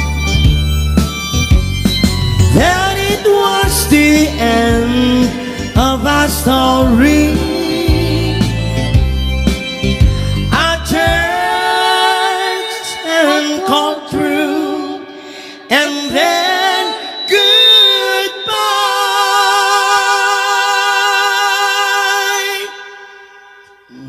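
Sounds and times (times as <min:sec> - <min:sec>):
band playing: 0:00.0 - 0:14.8
two singers singing a ballad: 0:02.5 - 0:09.1, 0:10.5 - 0:24.0.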